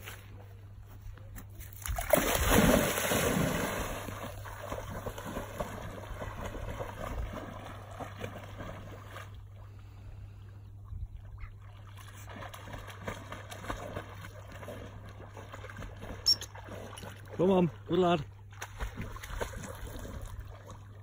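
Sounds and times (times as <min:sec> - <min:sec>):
dog splashing into water: 0:01.6 - 0:09.4, 0:11.6 - 0:17.4, 0:18.5 - 0:21.0
water sloshing: 0:01.6 - 0:10.0, 0:11.2 - 0:21.0.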